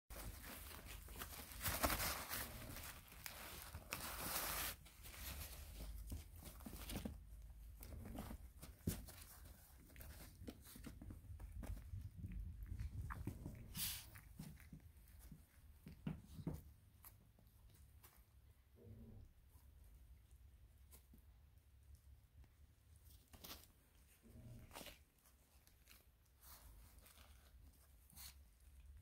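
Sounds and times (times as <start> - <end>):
plastic pad crinkling: 0.1 - 15.7
puppy scuffling: 0.1 - 18.8, 19.4 - 29.0.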